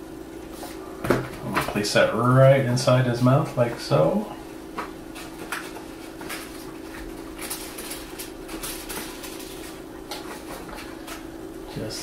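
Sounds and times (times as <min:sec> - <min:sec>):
paper rustling and crinkling: 0:05.1 - 0:11.2.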